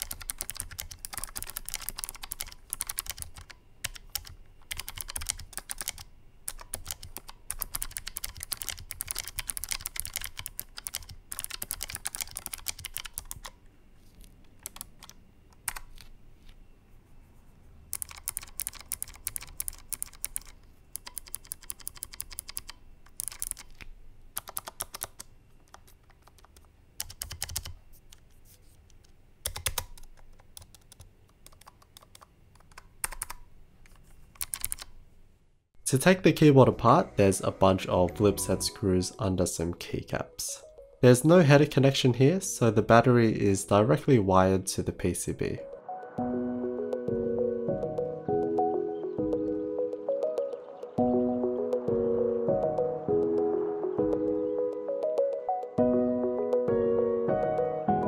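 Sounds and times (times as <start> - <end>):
typing on mechanical keyboard: 0.0 - 13.6, 14.2 - 16.1, 17.9 - 28.3, 29.0 - 35.0.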